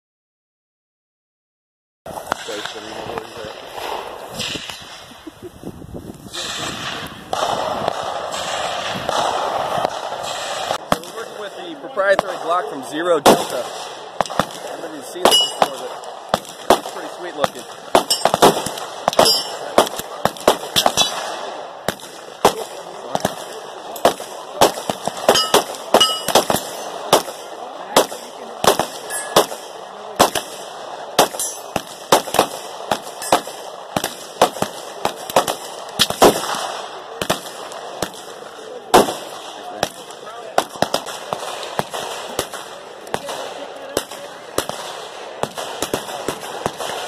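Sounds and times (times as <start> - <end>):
gunfire cracks: 6.3 - 11.5, 12.1 - 47.0
pistol shots: 6.4 - 11.5, 12.1 - 47.0.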